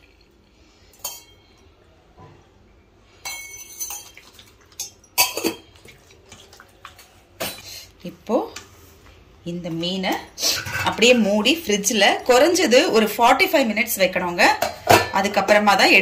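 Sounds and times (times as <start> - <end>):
metal clinks in steel bowl: 3.2 - 5.6.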